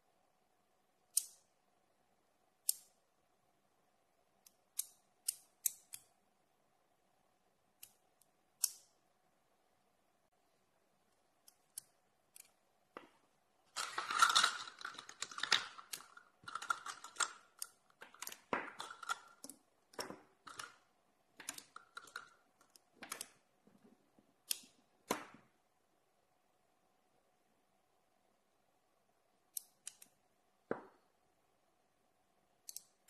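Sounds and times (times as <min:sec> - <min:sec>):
magnets and steel balls clicking: 0:13.7 - 0:23.4.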